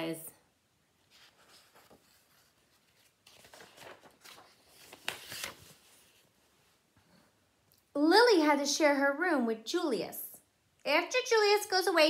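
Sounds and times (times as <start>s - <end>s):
page turning: 1.0s - 6.4s
paper rustling: 1.0s - 6.5s.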